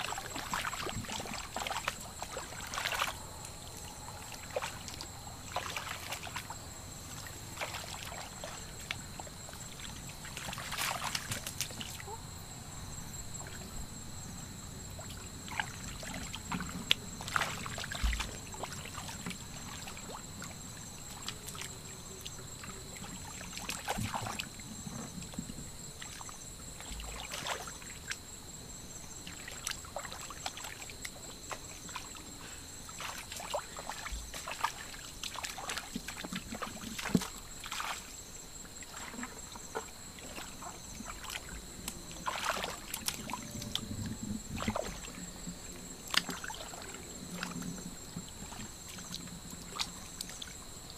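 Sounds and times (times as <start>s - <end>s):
hands splashing in muddy water: 38.8s - 43.4s.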